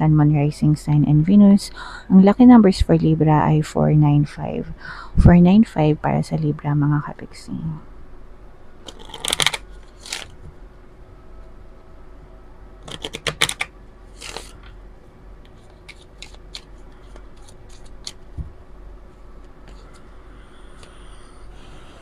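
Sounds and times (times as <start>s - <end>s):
cards being shuffled: 8.8s - 10.4s, 12.8s - 14.8s, 15.4s - 18.5s.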